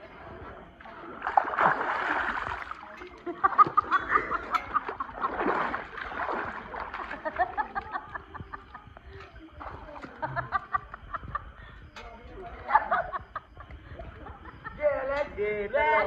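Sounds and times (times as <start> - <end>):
water streaming off swimmer: 0.0 - 10.3
pool water splashing: 0.0 - 11.5.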